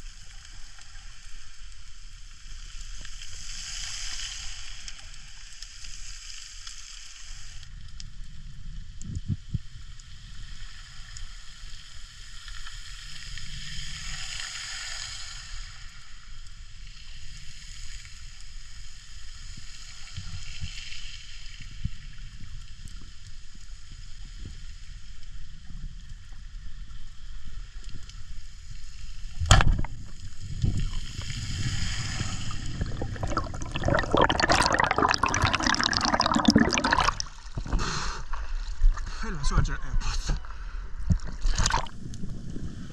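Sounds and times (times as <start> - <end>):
crackling hiss: 0.0 - 39.4
underwater low rumble: 21.8 - 39.2
speargun firing crack: 29.4 - 30.0
bubbling of diver breathing out: 29.5 - 39.2, 41.0 - 42.1.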